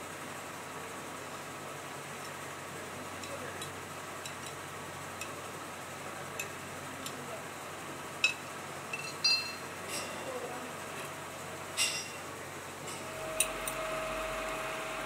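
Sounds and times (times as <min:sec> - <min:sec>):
workshop hum: 0:00.0 - 0:15.0.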